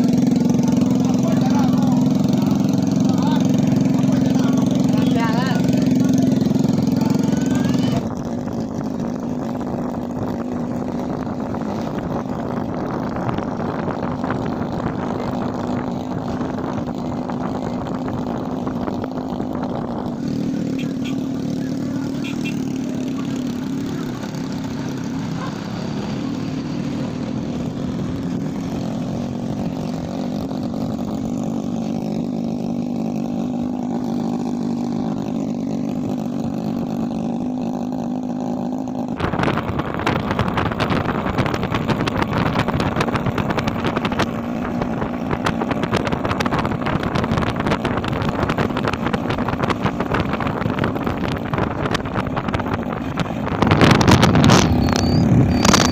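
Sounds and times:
motorcycle engine running: 0.0s - 55.9s
wind buffeting microphone: 45.4s - 55.9s.

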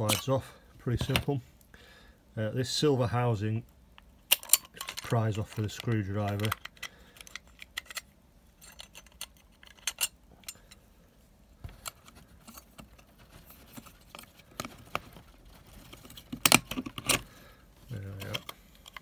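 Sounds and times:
screwdriver clicks and clinks: 4.3s - 10.7s.

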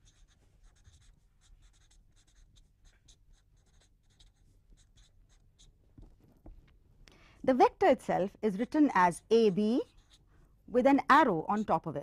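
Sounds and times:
handwriting strokes: 0.0s - 6.6s, 8.6s - 10.3s.

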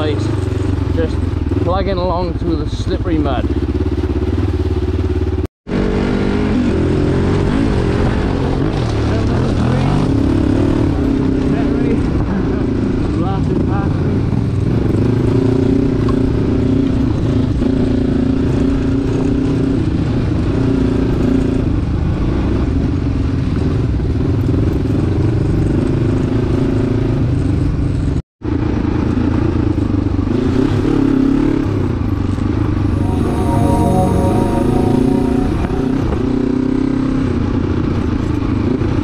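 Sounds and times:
motorcycle engine running: 0.0s - 7.0s.

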